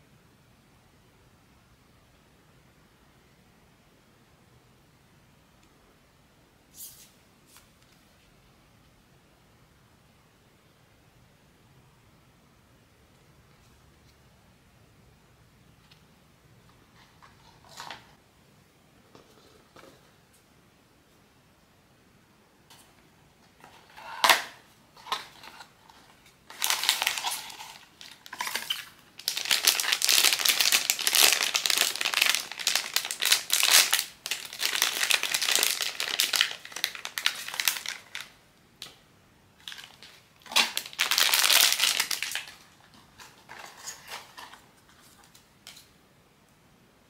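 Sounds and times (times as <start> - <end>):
packaging crinkling: 23.6 - 38.4, 39.6 - 45.4.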